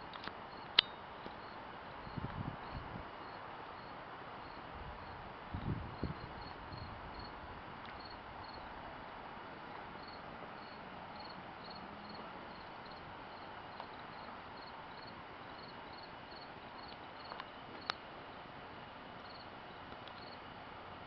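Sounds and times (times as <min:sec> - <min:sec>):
steady low hiss: 0:00.0 - 0:21.0
insect chirping: 0:00.5 - 0:05.2, 0:05.9 - 0:07.4, 0:08.0 - 0:08.7, 0:10.0 - 0:18.0, 0:19.2 - 0:19.5, 0:20.1 - 0:20.5.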